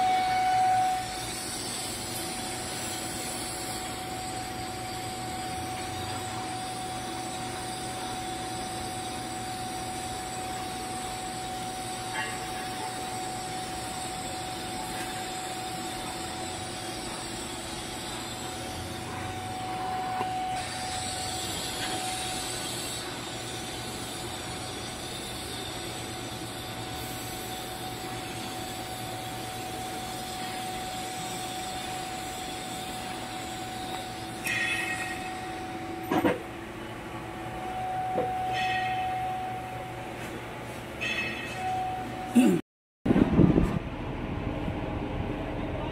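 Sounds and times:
welding arc hissing: 0:00.0 - 0:36.0.

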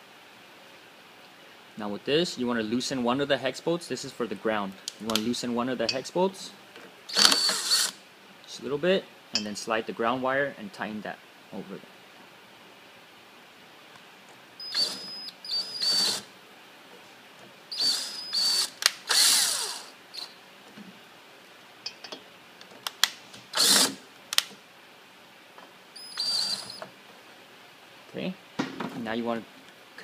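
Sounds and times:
cordless drill bursts: 0:07.1 - 0:08.0, 0:14.6 - 0:16.3, 0:17.7 - 0:20.3, 0:23.6 - 0:24.0, 0:26.0 - 0:26.8.

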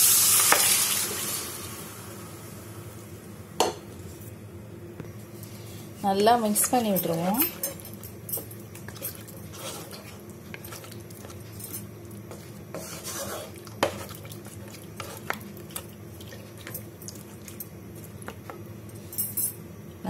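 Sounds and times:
spatula scraping a pan: 0:08.9 - 0:11.6, 0:12.3 - 0:15.6.

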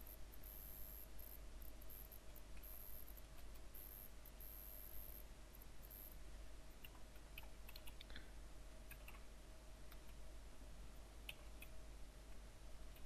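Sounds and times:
low electrical hum: 0:00.0 - 0:13.0
keyboard and mouse clicks: 0:06.8 - 0:08.2, 0:08.9 - 0:09.3, 0:09.9 - 0:10.2.

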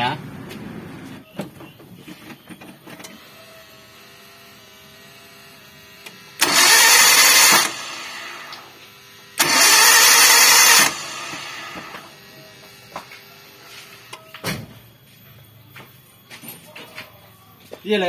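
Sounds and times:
starter motor cranking engine: 0:06.4 - 0:08.6, 0:09.4 - 0:12.0.

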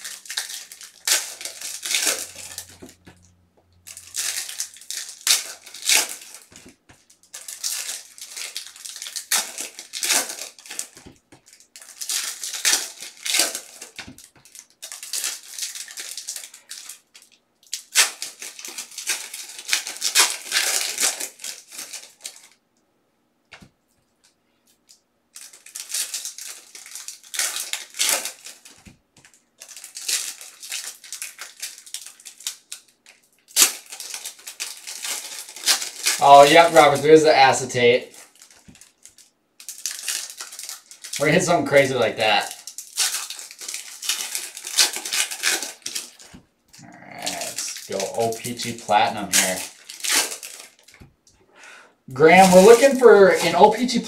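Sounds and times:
foil wrappers crinkling and tearing: 0:00.0 - 0:22.6, 0:24.8 - 0:51.2, 0:52.1 - 0:54.0
cards shuffling: 0:47.2 - 0:51.1, 0:52.1 - 0:54.0.

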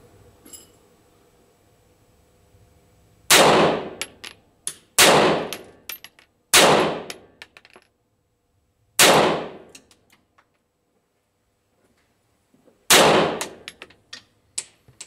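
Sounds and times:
pistol shots echoing: 0:03.3 - 0:04.0, 0:05.0 - 0:05.7, 0:06.6 - 0:07.2, 0:09.0 - 0:09.7, 0:12.9 - 0:13.7.

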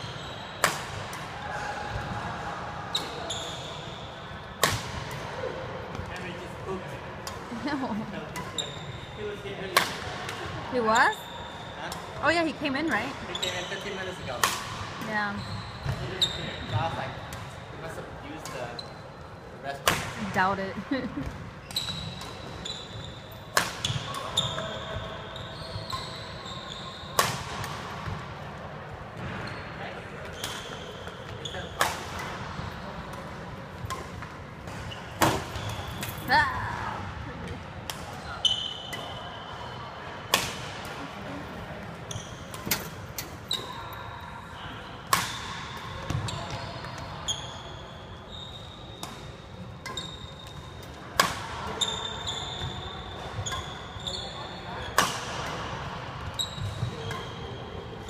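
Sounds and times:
sneakers squeaking on hardwood floor: 0:00.0 - 0:01.0, 0:02.9 - 0:05.1, 0:07.5 - 0:09.7, 0:10.4 - 0:17.2, 0:18.3 - 0:19.4, 0:21.2 - 0:28.3, 0:29.2 - 0:36.8, 0:38.1 - 0:39.9, 0:40.6 - 0:58.0
rackets striking shuttlecock: 0:00.6 - 0:01.3, 0:04.6 - 0:05.2, 0:14.4 - 0:15.0, 0:33.1 - 0:36.2, 0:45.0 - 0:46.3, 0:49.0 - 0:51.8.

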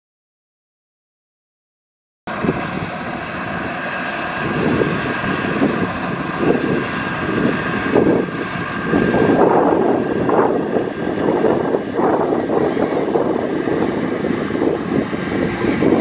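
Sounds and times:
combine harvester engine drone: 0:02.3 - 0:16.0
wind buffeting microphone: 0:02.3 - 0:16.0.

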